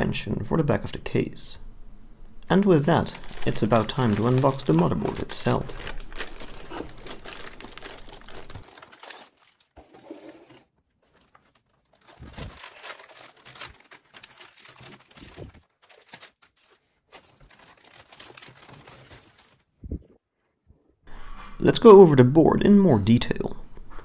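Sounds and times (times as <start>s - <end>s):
plastic bag crinkling: 2.4s - 19.8s.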